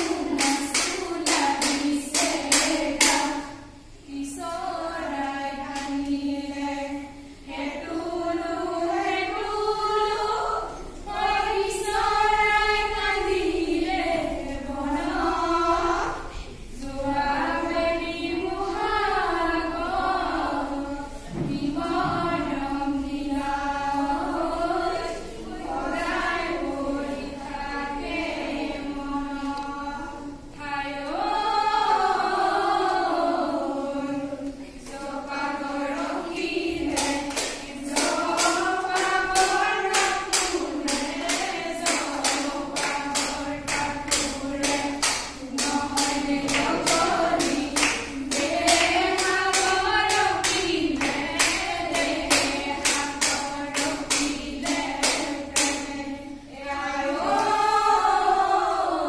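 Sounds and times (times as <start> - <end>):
clapped beat: 0.0 - 3.4, 36.4 - 55.9
women singing together: 0.0 - 59.0.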